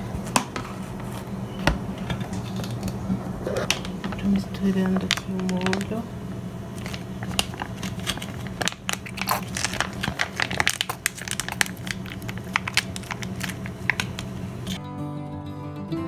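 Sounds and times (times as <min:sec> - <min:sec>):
foil pouch crinkling: 0:04.6 - 0:06.0, 0:06.7 - 0:14.8
acoustic guitar music: 0:14.8 - 0:16.0.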